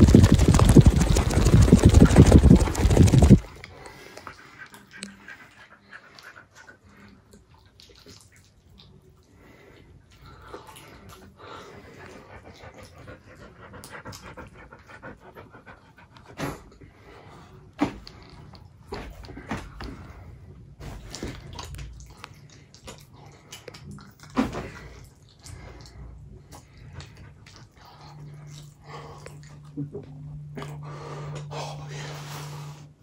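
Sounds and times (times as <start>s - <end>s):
dog panting: 0.0s - 7.4s, 11.4s - 17.6s.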